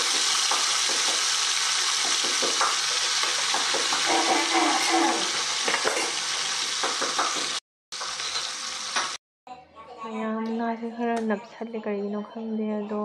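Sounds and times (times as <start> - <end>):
fish sizzling in hot oil: 0.0 - 9.2.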